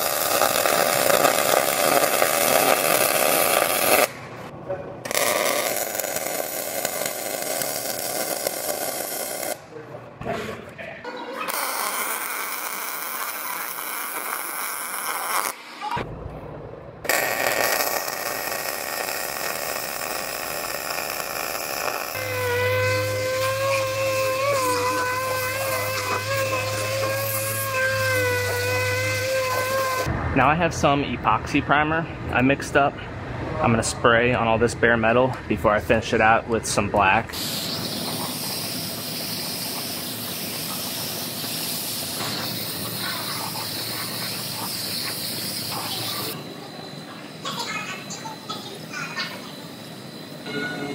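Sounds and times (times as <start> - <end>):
arc welding hiss: 0.0 - 4.2, 5.1 - 9.7, 11.5 - 15.8, 17.1 - 30.1, 37.4 - 46.4
air disc sander whining: 17.1 - 30.1, 37.3 - 50.9.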